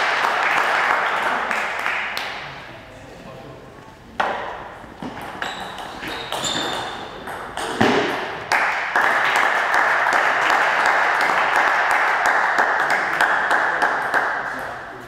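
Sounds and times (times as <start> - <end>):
spectators clapping: 0.0 - 2.5, 8.1 - 14.8.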